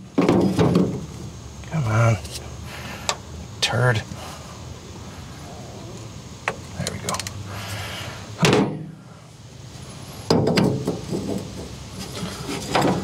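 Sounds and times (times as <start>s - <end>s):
loud knocks: 8.4s - 8.9s.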